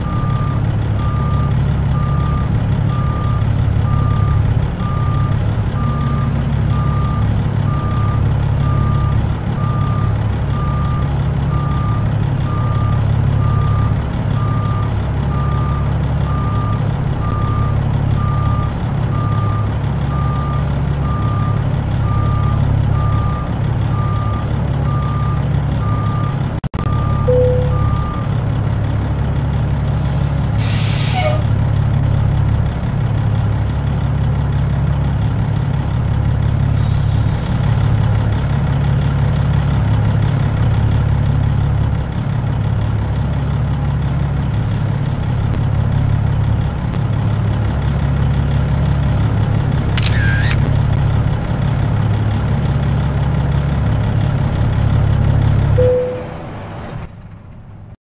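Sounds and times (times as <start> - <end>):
truck diesel engine running: 0.0 - 58.0
back-up alarm beeping: 26.9 - 28.3, 55.8 - 56.6.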